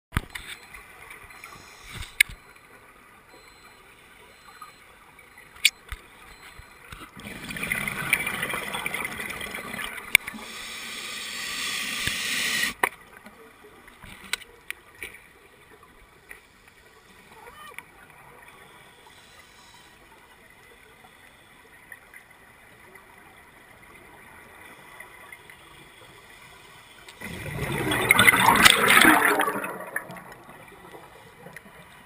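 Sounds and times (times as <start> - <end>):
underwater rushing bubbling water: 7.2 - 10.4, 27.2 - 32.0.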